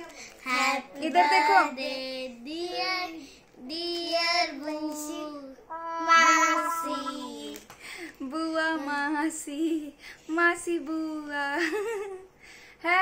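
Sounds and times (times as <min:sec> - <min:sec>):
young girls singing: 0:05.7 - 0:07.6.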